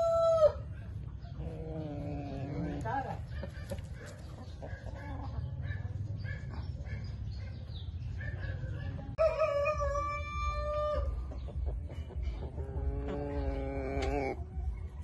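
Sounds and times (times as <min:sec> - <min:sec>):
loud long chicken call: 0:00.0 - 0:00.6
chickens clucking softly: 0:00.0 - 0:15.0.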